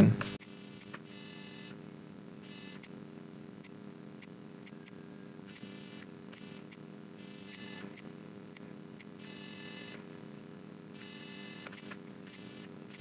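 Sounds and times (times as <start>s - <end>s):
faint steady hum: 0.0s - 13.0s
computer mouse clicking: 4.7s - 4.9s.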